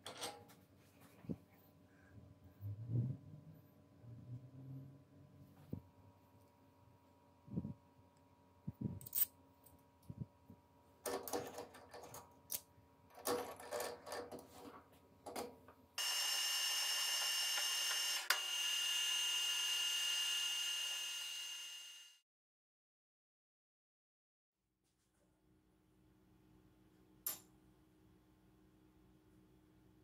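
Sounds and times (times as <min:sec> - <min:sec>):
metal clinks and clatter: 0:08.9 - 0:09.4
lathe running with whine: 0:16.0 - 0:22.2.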